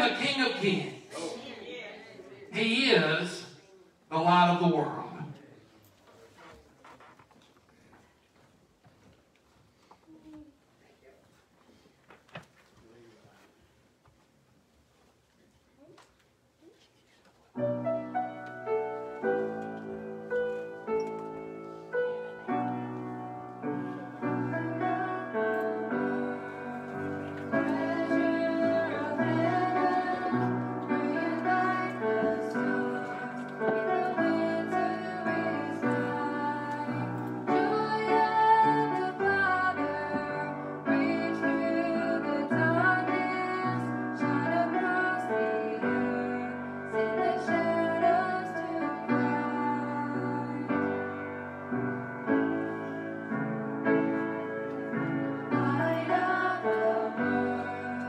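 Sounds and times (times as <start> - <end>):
grand piano chords: 17.6 - 58.0
women's vocal ensemble singing: 24.0 - 51.4, 54.9 - 58.0.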